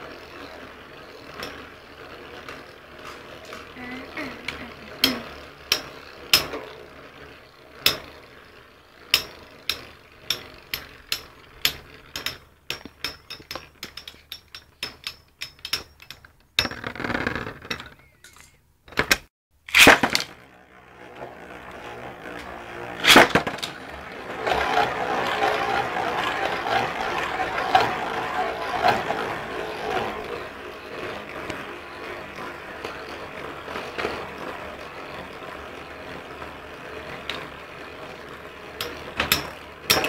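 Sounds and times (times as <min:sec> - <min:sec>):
spinning tops clacking: 0:21.5 - 0:33.0.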